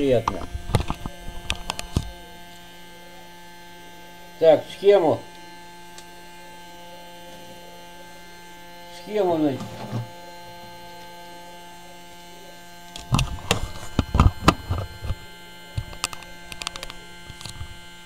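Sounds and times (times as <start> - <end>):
electrical mains hum: 0.0 - 18.0
knocks and clicks of objects handled: 0.2 - 2.1, 13.0 - 15.2, 15.8 - 17.8.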